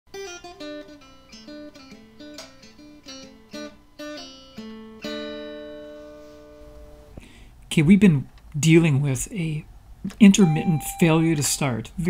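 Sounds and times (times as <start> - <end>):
acoustic guitar plucking: 0.2 - 6.7.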